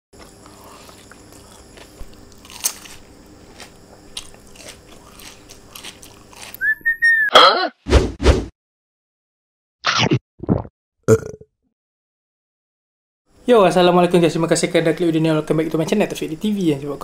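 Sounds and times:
crunching and chewing: 0.2 - 6.6
whistle glide: 6.6 - 7.3.

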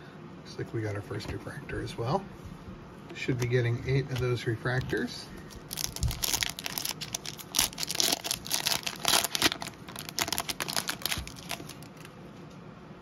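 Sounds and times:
wrapper crinkling and crackling: 4.1 - 12.2.

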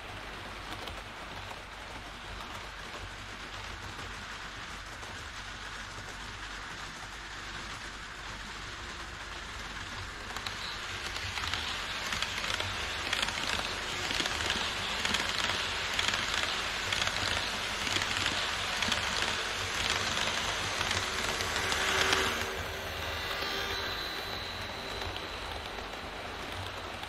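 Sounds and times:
model train wheels rolling on rail: 0.0 - 27.0
model train motor whir: 10.3 - 27.0.

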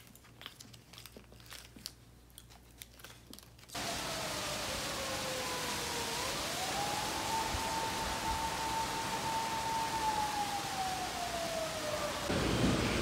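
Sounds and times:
siren sliding in pitch: 3.8 - 12.3
drizzling rain hiss: 3.8 - 13.0.

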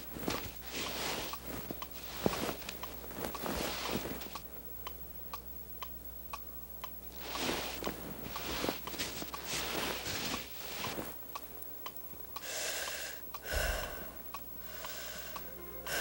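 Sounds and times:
rustling or shuffling: 0.0 - 4.4, 7.1 - 11.3
steady ticking: 4.3 - 7.4, 10.3 - 16.0.

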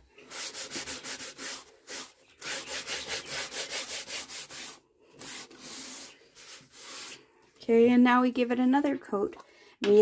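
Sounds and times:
cloth rubbing on wood panel: 0.3 - 7.2.

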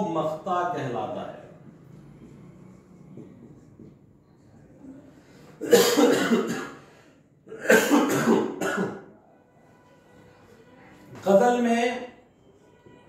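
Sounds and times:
man coughing: 5.6 - 6.8, 7.5 - 9.1.

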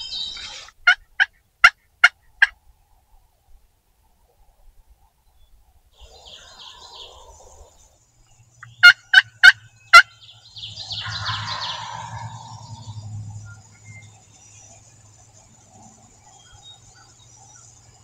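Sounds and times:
sharp turkey calls: 0.0 - 2.6, 8.6 - 13.0
turkey gobbling: 8.7 - 10.2, 10.9 - 13.0.

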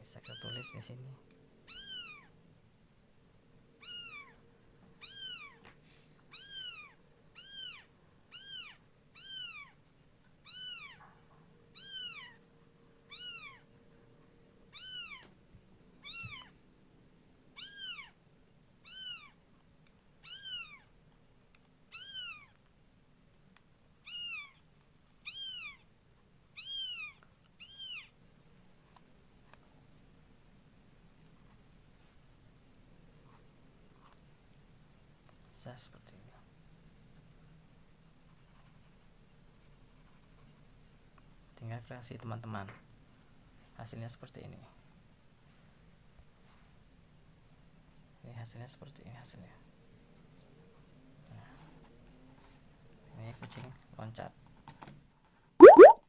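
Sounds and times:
cat meowing: 0.2 - 0.8, 1.7 - 2.3, 3.8 - 4.4, 5.0 - 5.6, 6.3 - 9.8, 10.4 - 11.0, 11.7 - 12.4, 13.1 - 13.6, 14.7 - 15.3, 16.0 - 16.5, 17.6 - 18.2, 18.8 - 19.4, 20.2 - 20.8, 21.9 - 22.5, 24.0 - 24.6.

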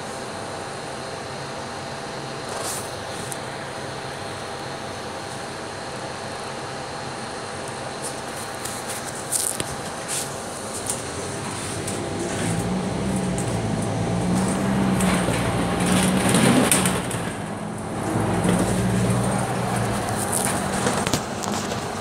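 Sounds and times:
bus diesel engine accelerating: 0.0 - 22.0
light rattles: 10.7 - 21.9.

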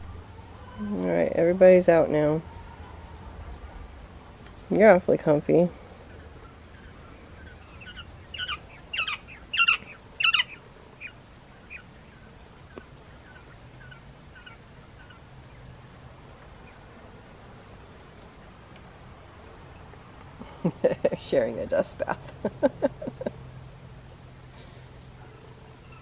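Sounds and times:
quail chirping: 6.0 - 15.7.

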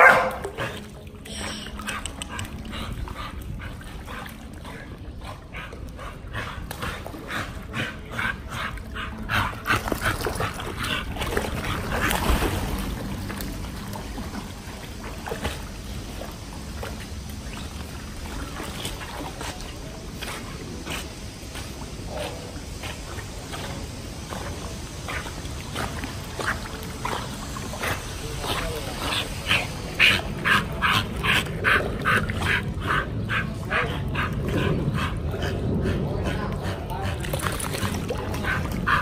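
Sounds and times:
dogs yipping and barking: 0.0 - 0.4.

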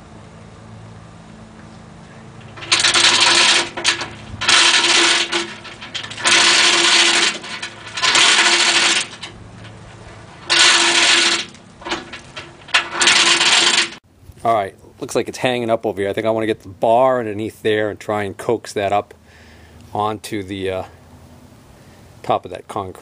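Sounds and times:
chain hoist ratchet rattle: 2.4 - 14.0.

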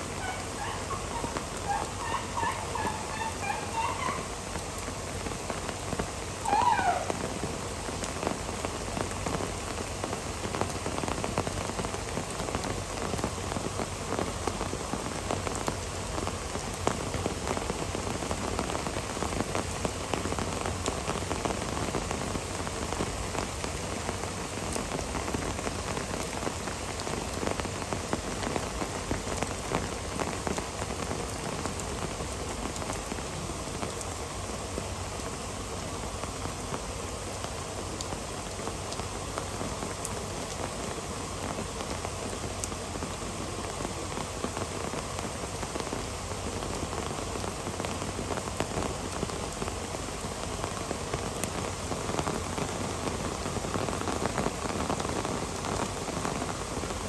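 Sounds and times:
heavy rain hissing: 0.0 - 57.0
raindrop ticks: 37.4 - 57.0.

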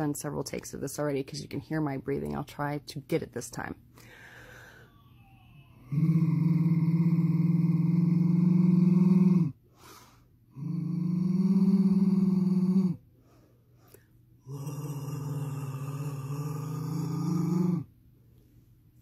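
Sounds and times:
short breath: 4.0 - 5.0, 9.7 - 10.4
woman growling in throat: 5.8 - 9.6, 10.6 - 13.0, 14.4 - 17.9.

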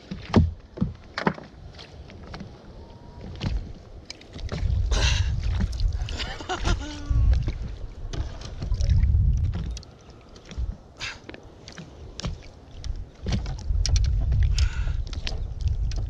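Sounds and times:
net and gear knocking on boat: 0.0 - 1.6
water splashing: 0.0 - 16.0
low rumble: 4.5 - 9.8.

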